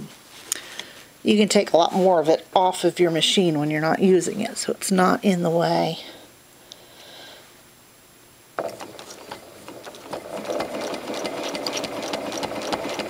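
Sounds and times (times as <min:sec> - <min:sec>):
sewing machine stitching: 0:08.6 - 0:13.0.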